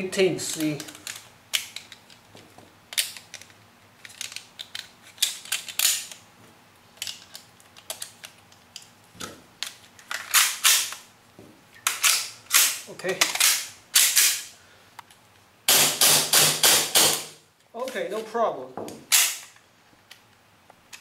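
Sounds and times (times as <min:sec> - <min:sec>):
pistol parts clicking and scraping: 0:00.4 - 0:06.3, 0:06.9 - 0:11.1, 0:11.8 - 0:15.2.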